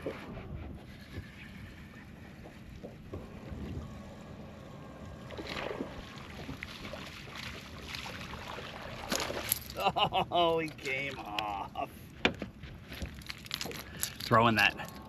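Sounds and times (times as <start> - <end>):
low rumble of wind and water: 0.0 - 15.0.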